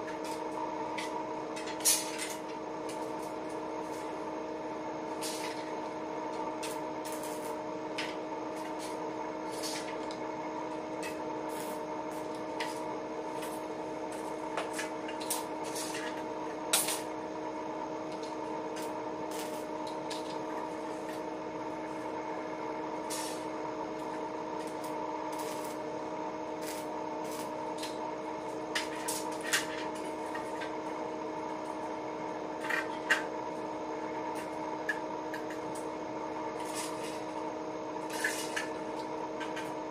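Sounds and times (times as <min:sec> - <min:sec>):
steady electrical hum: 0:00.0 - 0:39.9.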